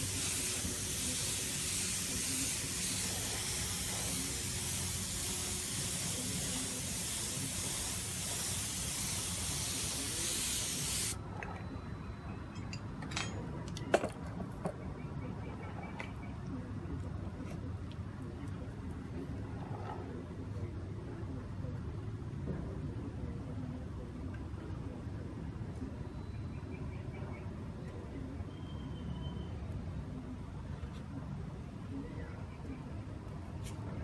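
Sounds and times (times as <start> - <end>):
spray gun hissing: 0.0 - 11.2.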